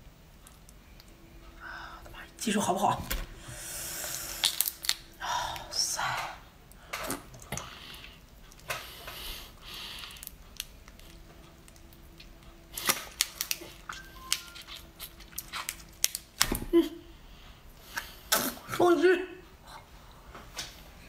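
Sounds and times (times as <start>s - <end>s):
sucking noises: 3.4s - 6.4s
prawn shell crackling: 4.0s - 5.2s, 8.3s - 16.6s.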